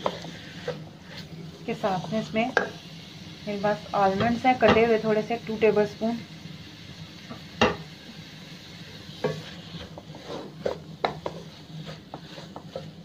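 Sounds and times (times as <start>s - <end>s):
spatula scraping steel pan: 9.2s - 13.0s
spatula knocking against pan: 10.6s - 11.4s.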